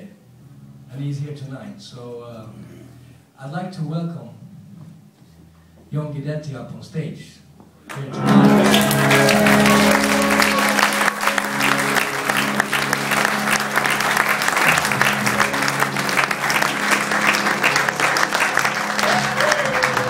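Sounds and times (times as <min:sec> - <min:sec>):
audience applauding: 0:07.9 - 0:20.0
band holding low notes: 0:07.9 - 0:20.0.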